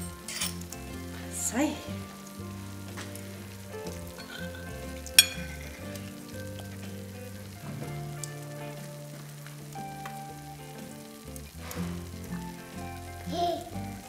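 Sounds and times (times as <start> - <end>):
soft background music: 0.0 - 14.0
steady hiss: 0.0 - 14.0
metal spoon clinking on plate: 5.2 - 5.7.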